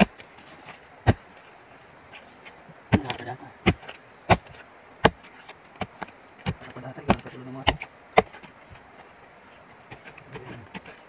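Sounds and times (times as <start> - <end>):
digging tool chopping into soil: 0.0 - 1.3, 2.4 - 8.9.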